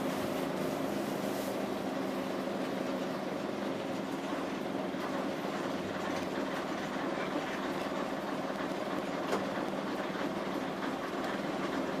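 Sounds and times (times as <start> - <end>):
bus diesel engine drone: 0.0 - 12.0
road noise: 0.0 - 12.0
bus body rattling: 4.1 - 12.0.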